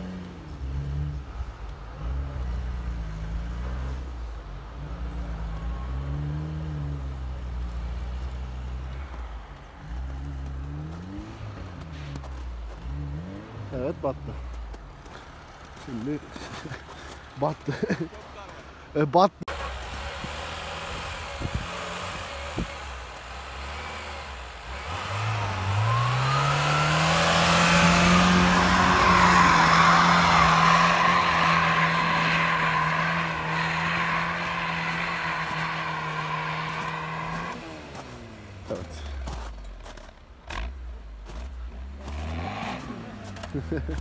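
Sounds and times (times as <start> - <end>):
car engine revving: 0.0 - 16.5, 19.5 - 44.0
tyres spinning in snow: 4.9 - 18.9, 19.5 - 44.0.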